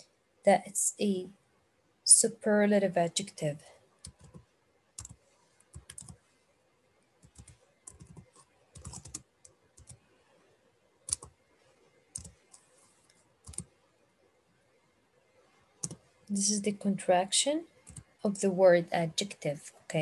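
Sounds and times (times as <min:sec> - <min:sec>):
typing on keyboard: 0:04.0 - 0:04.4, 0:05.0 - 0:06.2, 0:07.2 - 0:09.2, 0:09.8 - 0:10.0, 0:11.1 - 0:11.3, 0:12.2 - 0:12.6, 0:13.4 - 0:13.7, 0:17.9 - 0:18.1.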